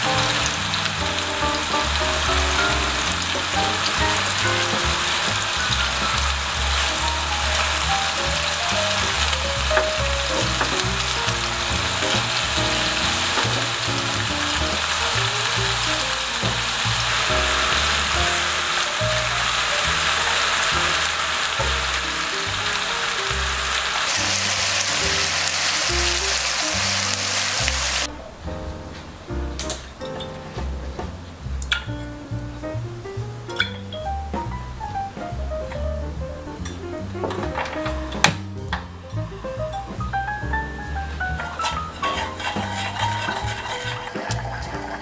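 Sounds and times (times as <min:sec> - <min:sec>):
background music: 0:00.0 - 0:23.2, 0:28.0 - 0:45.0
meat sizzling in a pan: 0:00.0 - 0:28.1, 0:41.2 - 0:45.0.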